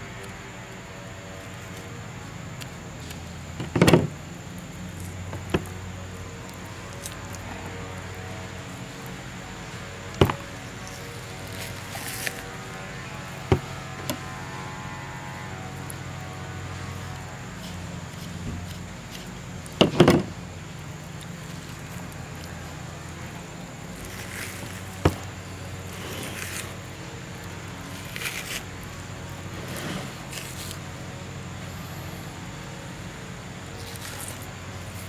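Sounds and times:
hands scraping and rustling on meat: 10.8 - 13.0, 24.0 - 25.2, 25.8 - 30.8.

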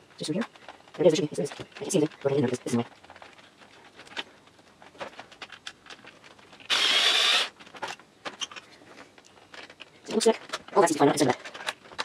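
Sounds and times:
hands handling parts clicking: 0.4 - 12.0
electric screwdriver whine: 6.7 - 7.5.

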